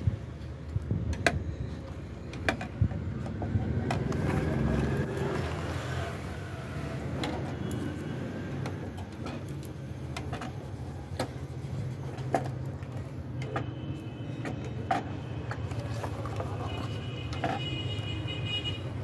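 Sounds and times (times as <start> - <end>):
small objects clicking and knocking: 7.1 - 18.3.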